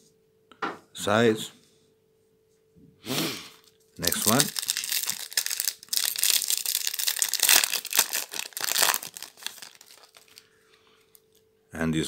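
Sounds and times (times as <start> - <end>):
foil wrapper crinkling and tearing: 4.0 - 10.5.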